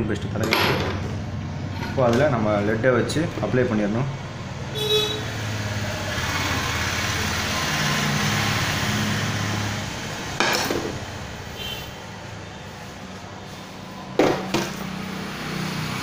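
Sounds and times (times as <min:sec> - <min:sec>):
vehicle engine passing by: 0:03.2 - 0:16.0.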